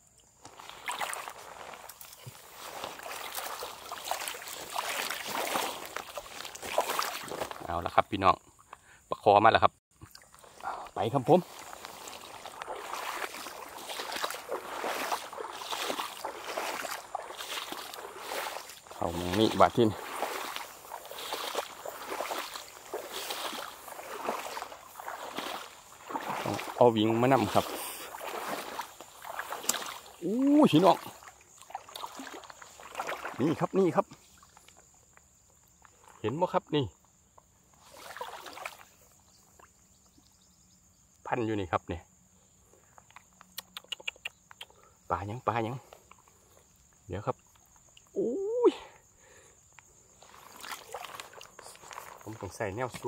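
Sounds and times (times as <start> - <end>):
footsteps wading through water: 0.0 - 8.0, 9.9 - 40.0, 44.4 - 53.0
grass swishing: 0.5 - 7.6, 11.3 - 30.9.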